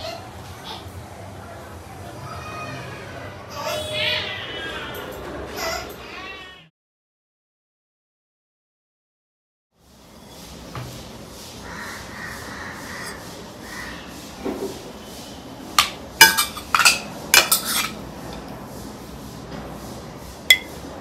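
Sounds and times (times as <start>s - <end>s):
dishes and cutlery clinking: 15.8s - 18.6s, 20.5s - 20.8s.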